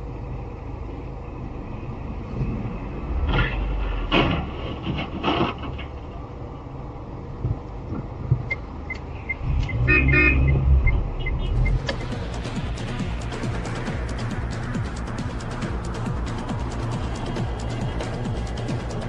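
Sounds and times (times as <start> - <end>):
idling engines rumbling: 0.0 - 19.0
car horns honking: 9.2 - 11.8.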